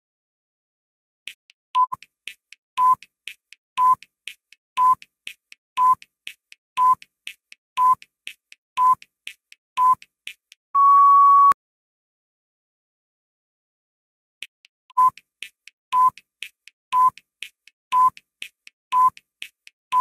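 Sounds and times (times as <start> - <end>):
timer clicks: 1.3 - 10.6, 14.9 - 20.0
timer beeps: 1.8 - 2.0, 2.8 - 3.0, 3.8 - 4.0, 4.8 - 5.0, 5.8 - 6.0, 6.8 - 7.0, 7.8 - 8.0, 8.8 - 9.0, 9.8 - 10.0, 10.8 - 11.6, 14.9 - 15.2, 15.9 - 16.2, 16.9 - 17.2, 17.9 - 18.2, 18.9 - 19.2.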